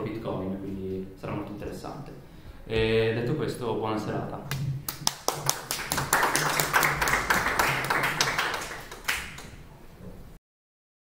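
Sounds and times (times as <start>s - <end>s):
audience applause: 5.0s - 9.6s.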